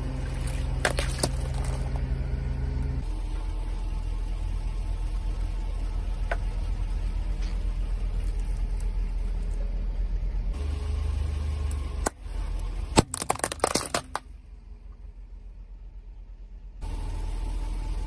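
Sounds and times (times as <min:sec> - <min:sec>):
car engine running: 0:00.0 - 0:18.0
tyre crushing something brittle: 0:00.4 - 0:02.0, 0:13.0 - 0:14.2
sharp crack: 0:12.9 - 0:14.3.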